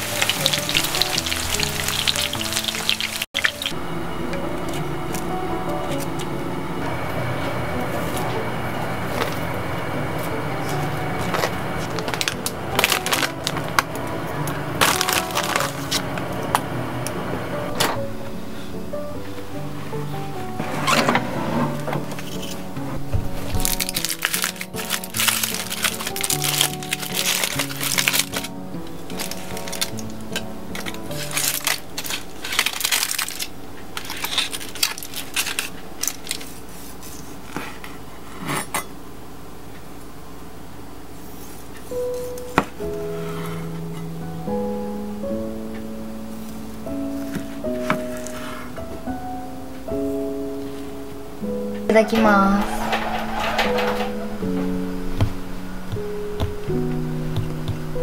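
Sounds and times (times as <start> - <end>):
patties frying in oil: 0.0 - 3.8
soft background music: 0.0 - 37.6, 41.2 - 58.0
dishes and utensils clinking: 52.0 - 54.7.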